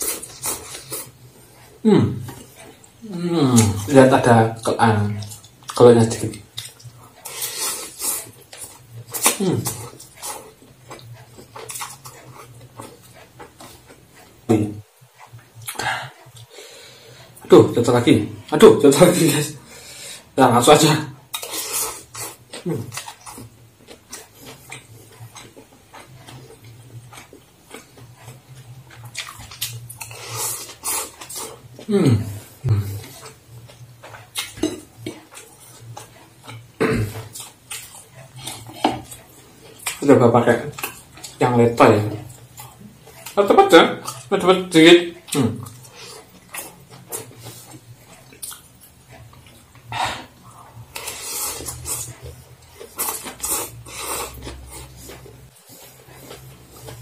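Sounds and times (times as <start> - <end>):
noodles being chewed and slurped: 0.0 - 14.5, 18.5 - 57.0
low steady hum: 0.0 - 57.0
slurping noodles: 49.8 - 57.0.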